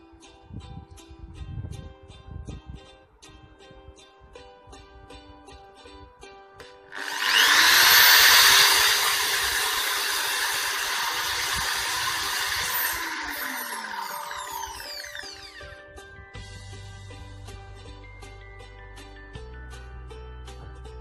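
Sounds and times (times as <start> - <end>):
electric drill whining: 6.9 - 15.8.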